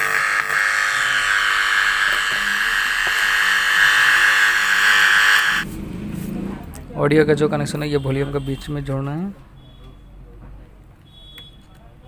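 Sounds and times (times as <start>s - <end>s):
loud electrical buzz from speaker: 0.0s - 5.7s.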